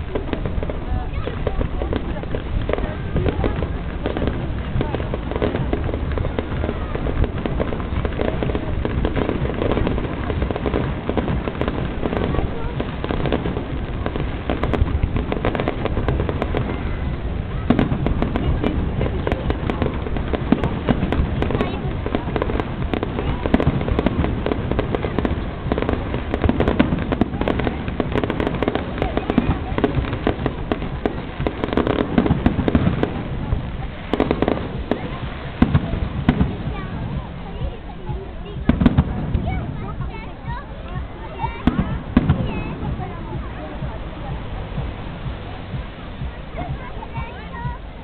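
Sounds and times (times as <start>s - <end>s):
fireworks crackling and popping: 0.0s - 48.0s.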